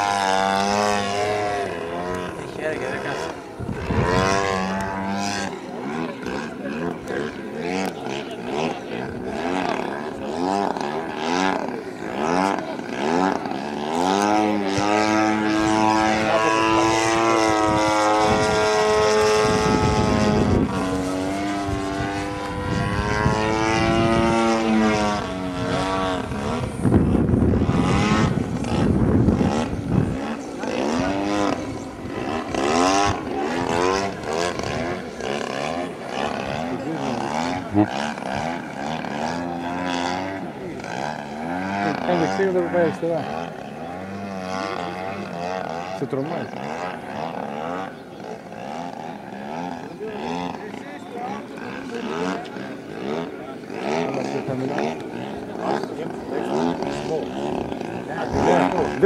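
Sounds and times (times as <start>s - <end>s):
model plane engine and propeller: 0.0s - 59.0s.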